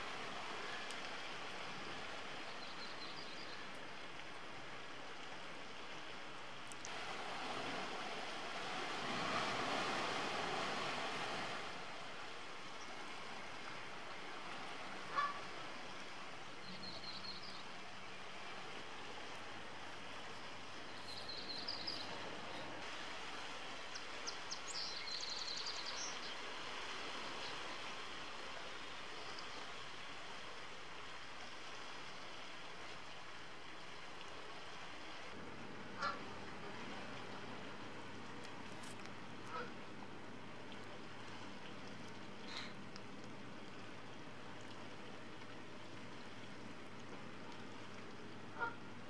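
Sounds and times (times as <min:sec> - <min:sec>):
steady outdoor hiss: 0:00.0 - 0:49.0.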